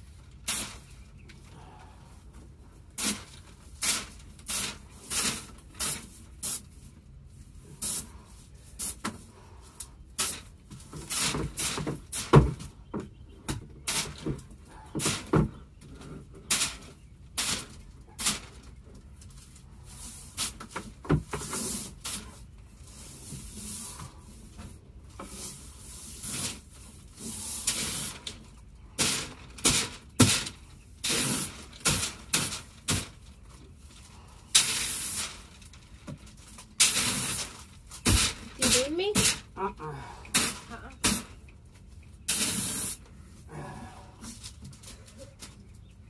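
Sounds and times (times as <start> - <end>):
paint spray gun hissing: 42.3 - 43.0.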